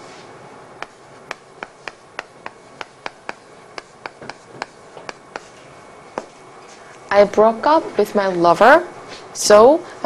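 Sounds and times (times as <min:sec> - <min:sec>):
chalk writing on chalkboard: 0:00.8 - 0:06.4.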